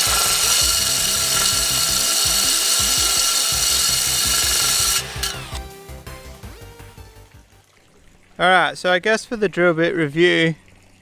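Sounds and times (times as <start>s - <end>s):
drill hole saw grinding glass: 0.0s - 5.8s.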